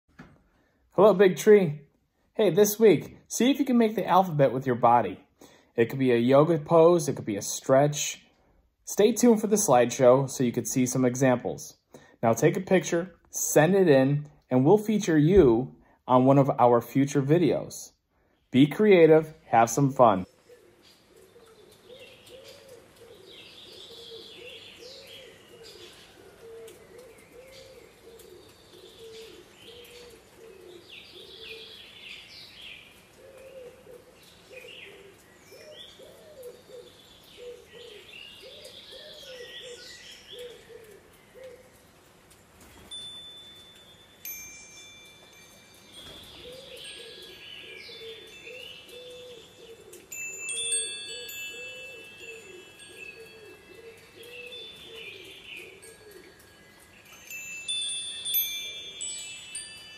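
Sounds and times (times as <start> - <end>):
birds chirping and twittering: 16.1 - 59.9
bird cooing: 20.3 - 42.0, 45.5 - 57.4, 58.1 - 59.9.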